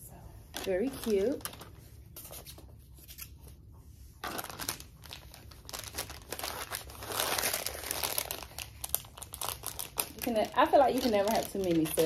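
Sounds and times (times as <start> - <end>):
plastic bag crinkling: 0.5 - 1.9, 4.2 - 12.0.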